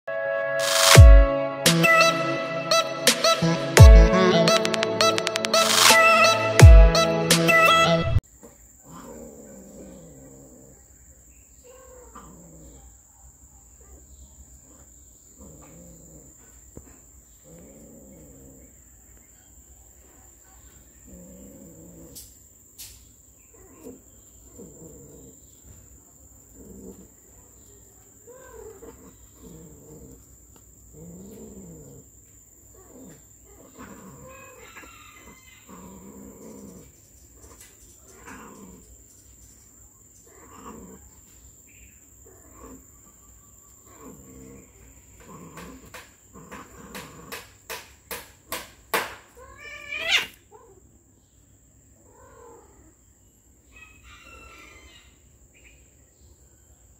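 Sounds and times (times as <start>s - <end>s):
cats yowling: 32.9s - 36.8s, 49.3s - 50.8s, 52.0s - 52.9s.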